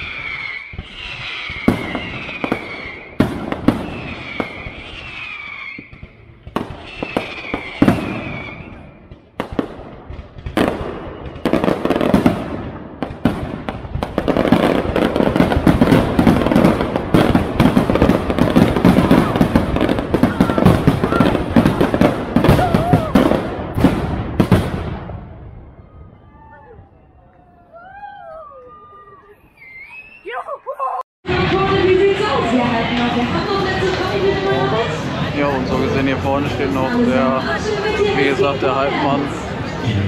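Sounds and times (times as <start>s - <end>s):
crackling firework bursts: 0.0s - 25.7s
fireworks whistling: 0.0s - 27.2s, 28.9s - 30.5s
fireworks bangs: 0.0s - 27.9s.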